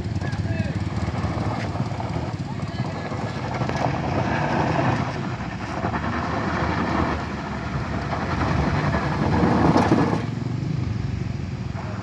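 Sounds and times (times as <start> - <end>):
car engine working hard: 0.0 - 12.0.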